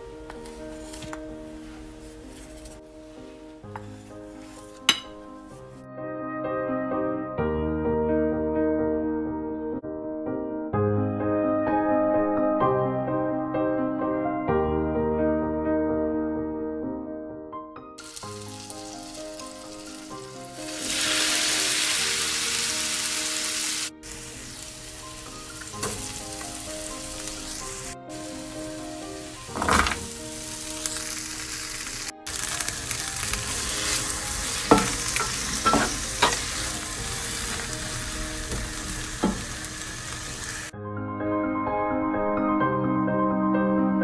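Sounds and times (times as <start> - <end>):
vegetables sizzling in a frying pan: 18.0 - 40.7.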